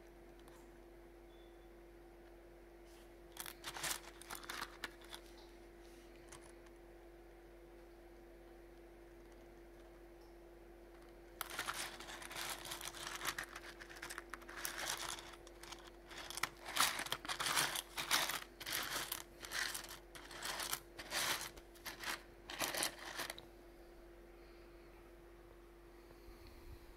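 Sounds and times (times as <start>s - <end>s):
steady low hum: 0.0s - 26.9s
plastic bag crinkling: 3.4s - 5.4s, 11.4s - 23.4s.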